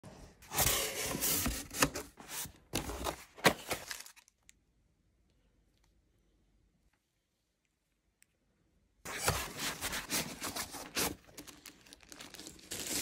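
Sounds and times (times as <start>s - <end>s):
cardboard box rustling and scraping: 9.1s - 11.2s.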